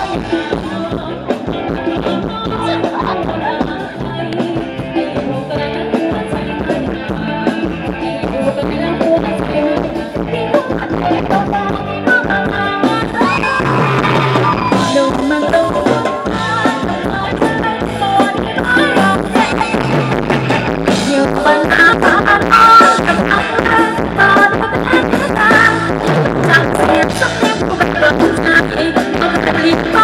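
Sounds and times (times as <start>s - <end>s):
live band dance music: 0.0s - 30.0s
person singing: 0.0s - 30.0s
steady drum beat: 9.2s - 30.0s.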